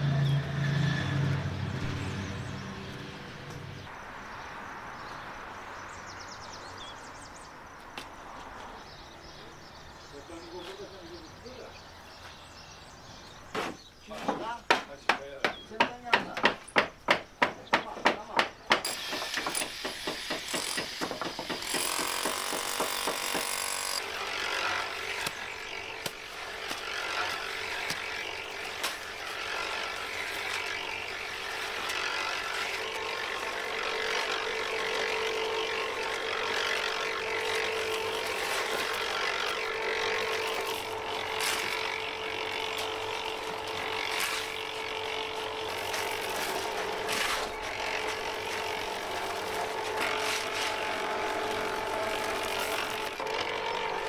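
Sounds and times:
power tool motor whirring: 18.8s - 54.0s.

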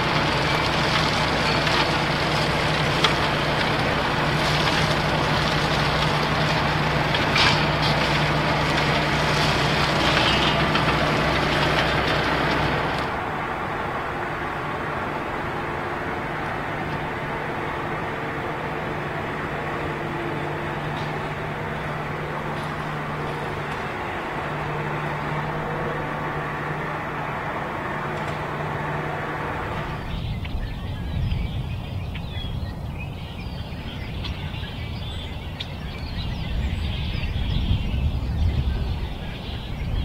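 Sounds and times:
tractor engine droning: 0.0s - 40.0s
small birds chirping: 29.8s - 40.0s.

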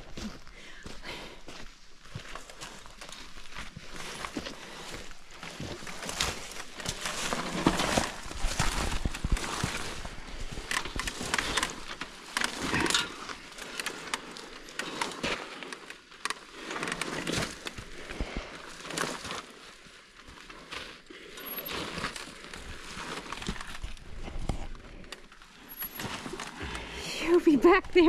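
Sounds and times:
footsteps on dry leaves: 0.0s - 15.2s
motorcycle tyres crunching leaves: 2.6s - 27.0s.

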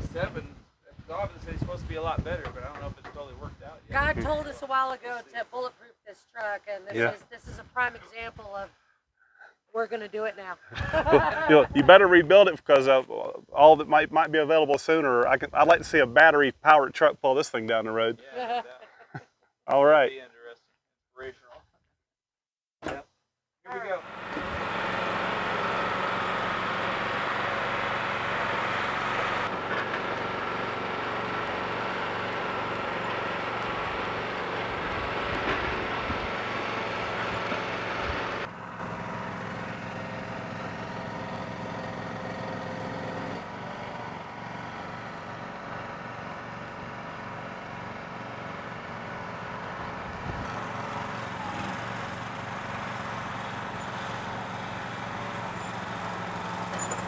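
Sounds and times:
small gasoline engine running: 23.8s - 57.0s.

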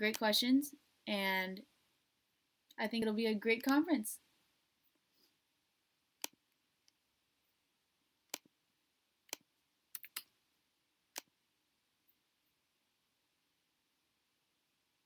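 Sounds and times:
computer clicks: 9.3s - 10.3s.

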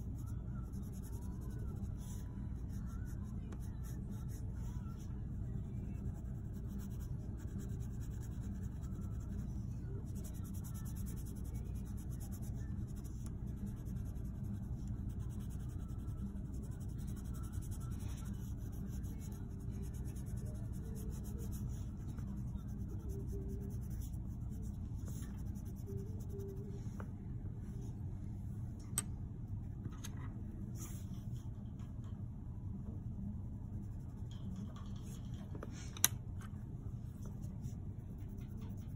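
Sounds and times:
steady low hum: 0.0s - 38.9s
pencil scratching on paper: 0.1s - 26.7s, 37.2s - 38.9s.

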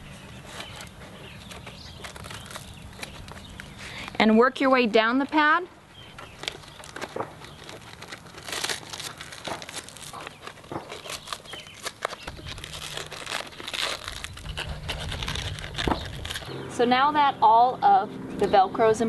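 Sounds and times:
velcro straps rasping: 0.0s - 16.5s
low rumble: 12.3s - 18.4s.

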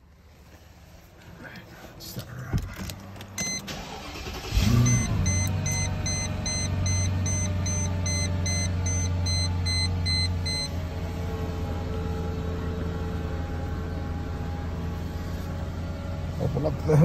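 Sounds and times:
car engine starting and idling: 0.0s - 17.0s
dashboard warning chime beeping: 3.4s - 10.8s.

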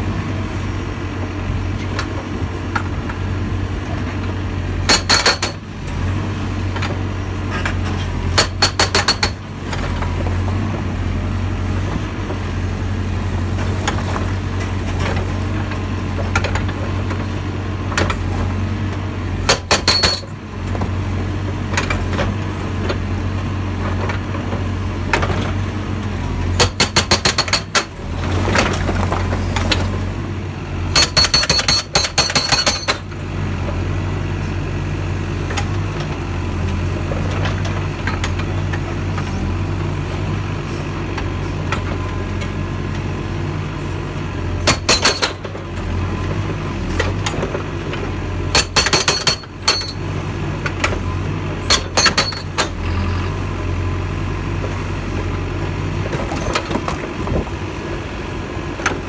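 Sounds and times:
diesel engine low hum: 0.0s - 59.0s
hydraulic breaker hammering stones: 4.8s - 5.7s, 6.7s - 10.3s, 19.4s - 20.9s, 26.5s - 30.0s, 30.8s - 33.3s, 44.6s - 45.8s, 46.9s - 51.0s, 51.6s - 53.0s.

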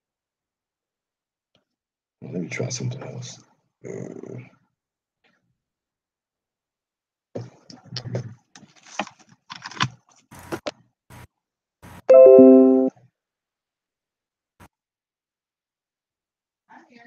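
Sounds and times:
computer chime of falling tones: 12.1s - 12.9s.

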